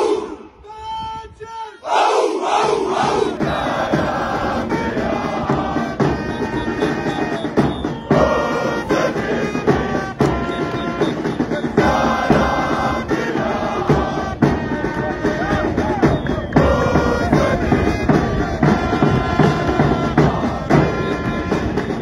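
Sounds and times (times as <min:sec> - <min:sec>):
crowd singing a chant: 0:00.0 - 0:00.6, 0:01.8 - 0:22.0
drum beat: 0:02.6 - 0:22.0.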